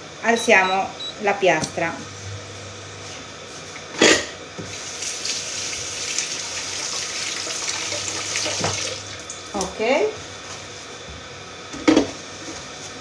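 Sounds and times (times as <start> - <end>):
kitchen tap running into sink: 4.7 - 9.7.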